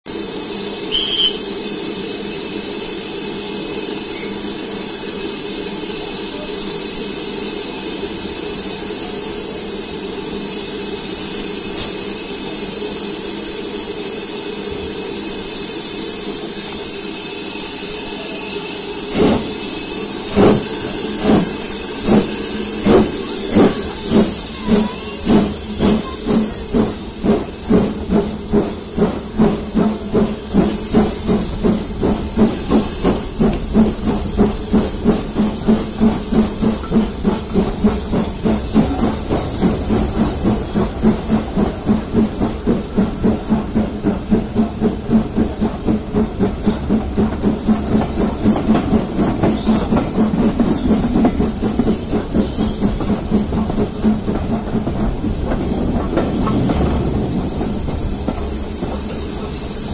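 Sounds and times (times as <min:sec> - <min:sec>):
steam hissing: 0:00.1 - 0:59.9
locomotive exhaust beats: 0:19.1 - 0:59.9.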